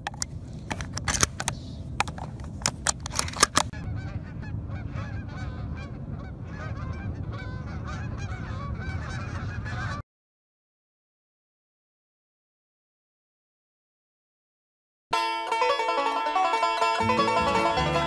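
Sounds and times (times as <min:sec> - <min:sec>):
shotgun shells clicking in: 0:00.0 - 0:03.8
geese honking in flight: 0:03.5 - 0:10.0, 0:15.2 - 0:18.0.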